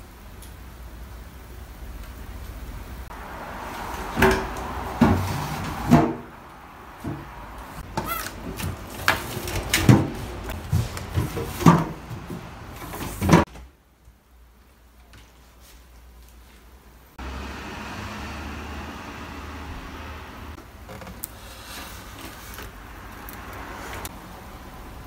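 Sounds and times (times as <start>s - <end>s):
freezer drawers knocking and thumping: 4.2s - 6.3s, 7.9s - 13.6s.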